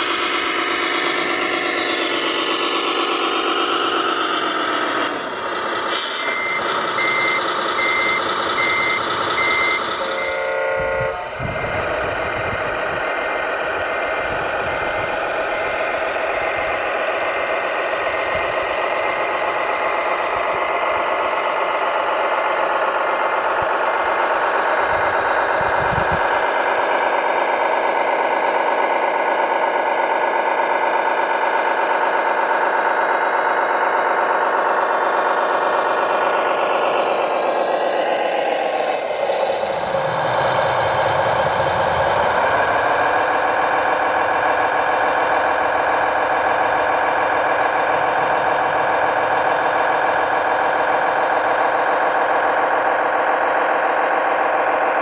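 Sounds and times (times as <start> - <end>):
simulated diesel truck engine: 0.0 - 55.0.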